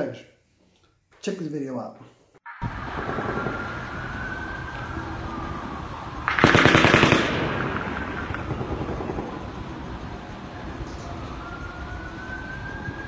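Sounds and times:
gunfire echo: 6.3 - 9.4
rapid automatic gunfire: 6.3 - 9.4.

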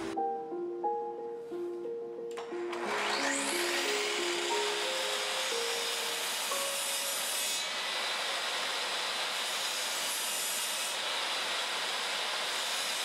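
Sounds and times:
saw cutting wood: 2.5 - 13.0.

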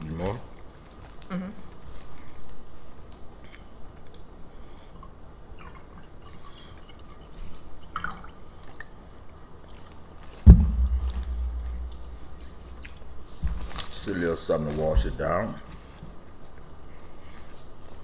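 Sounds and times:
loud thump: 10.5 - 12.8
low rumble: 10.5 - 12.9.

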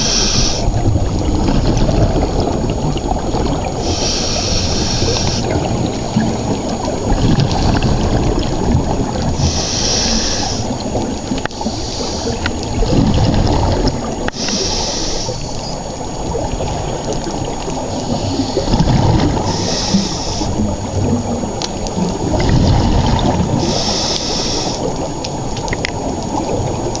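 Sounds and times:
diver breathing hiss: 0.0 - 0.8, 3.8 - 5.6, 9.4 - 10.9, 11.5 - 12.7, 14.3 - 15.6, 17.9 - 18.8, 19.4 - 20.6, 23.5 - 25.1
gurgling bubbles: 0.0 - 27.0
underwater gurgling rumble: 0.0 - 27.0.

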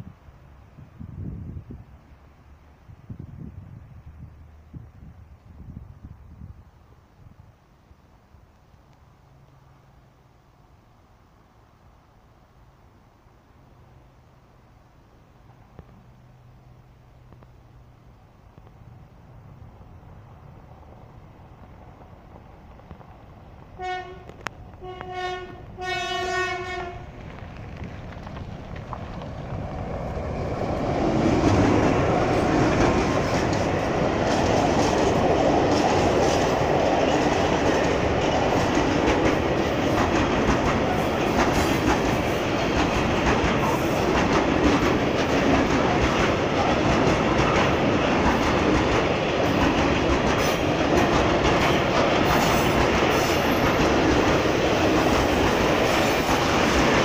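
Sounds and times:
freight train rumbling past: 15.2 - 57.0
locomotive horn blasts: 23.8 - 27.1.

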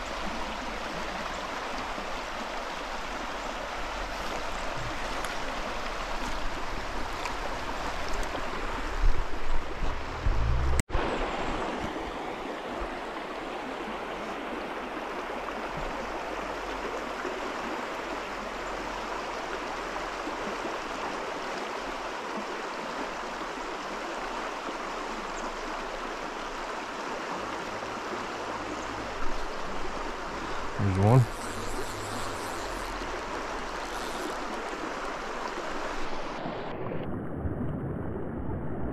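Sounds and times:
stream water flowing: 0.0 - 38.3
low bump: 9.8 - 10.9.

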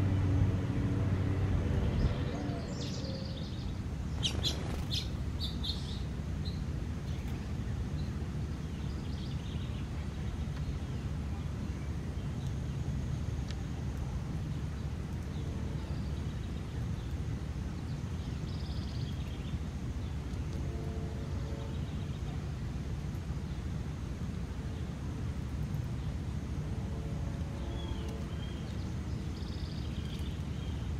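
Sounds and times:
steady low rumble: 0.0 - 30.9.

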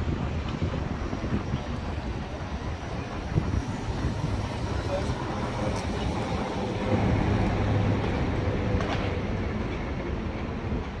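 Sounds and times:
vehicle rumble: 0.0 - 11.0.

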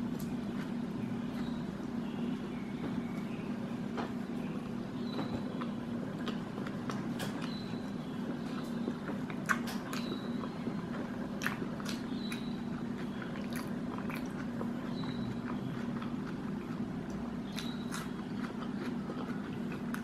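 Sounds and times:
steady low hum: 0.0 - 20.0
wet mouth chewing clicks: 9.2 - 20.0.

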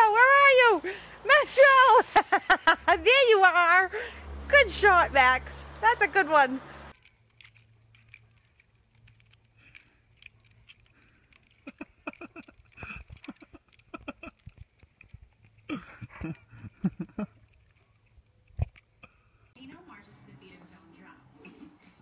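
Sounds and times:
dog claws scratching on bark: 6.9 - 15.7.

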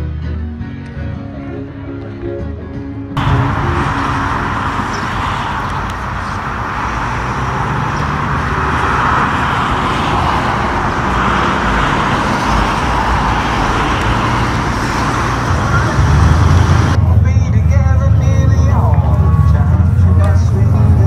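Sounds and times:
traffic hiss: 3.2 - 17.0
car engine driving slowly by: 3.2 - 21.0.

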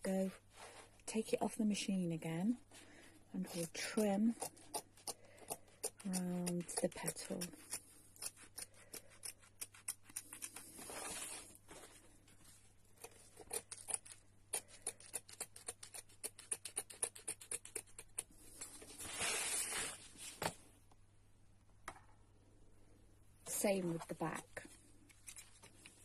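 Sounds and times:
scissors snipping fabric: 3.5 - 10.7
fabric rustling: 18.6 - 20.6.

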